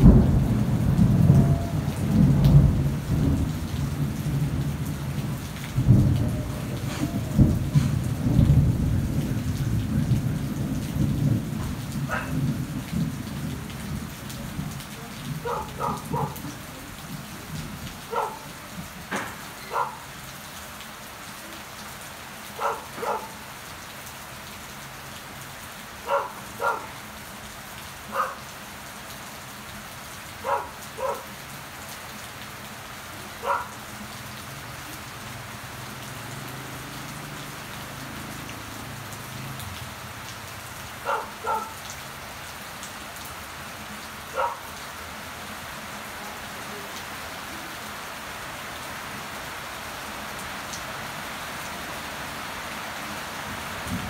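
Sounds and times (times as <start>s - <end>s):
rain on plants and leaves: 0.0s - 54.0s.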